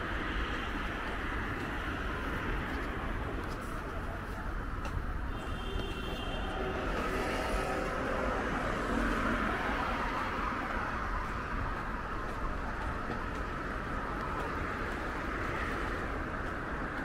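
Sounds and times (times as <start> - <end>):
road traffic noise: 0.0 - 17.0
car passing: 6.5 - 17.0.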